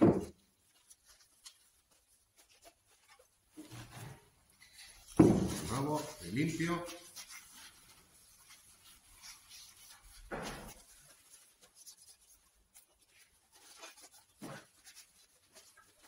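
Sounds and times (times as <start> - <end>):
cloth rubbing on metal: 0.0 - 16.0
handling noise: 2.5 - 6.8.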